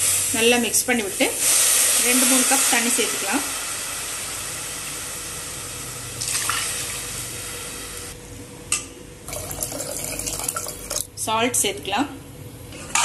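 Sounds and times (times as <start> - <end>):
water pouring into a metal pot: 6.2 - 7.0, 9.3 - 11.1.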